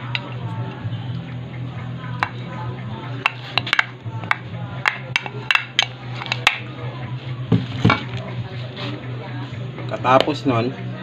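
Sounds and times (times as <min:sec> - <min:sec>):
utensil clinking against bowl: 0:00.0 - 0:00.5, 0:03.1 - 0:06.7
low steady hum: 0:00.0 - 0:11.0.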